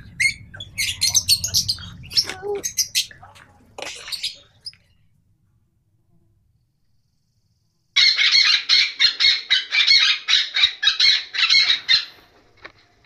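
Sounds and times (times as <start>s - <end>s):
parrot chirping calls: 0.0s - 3.2s, 8.0s - 12.1s.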